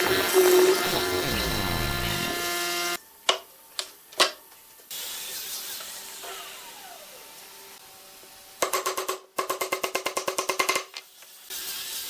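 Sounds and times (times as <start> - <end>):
electric motor humming: 0.0 - 3.0.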